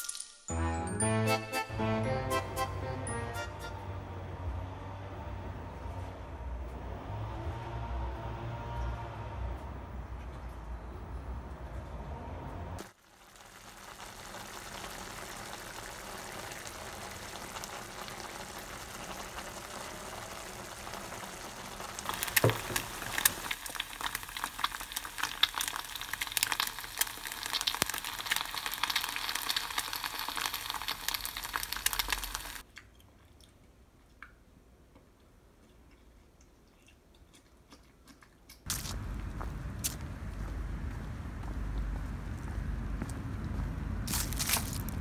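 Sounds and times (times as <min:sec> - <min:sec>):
eggs frying in oil: 0:12.8 - 0:32.7.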